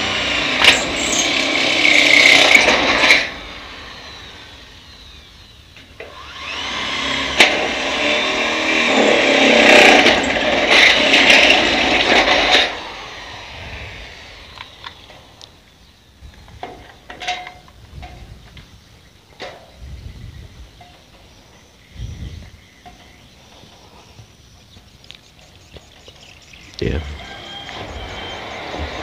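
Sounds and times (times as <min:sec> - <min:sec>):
electric drill boring through steel: 0:00.0 - 0:15.5, 0:26.9 - 0:29.0.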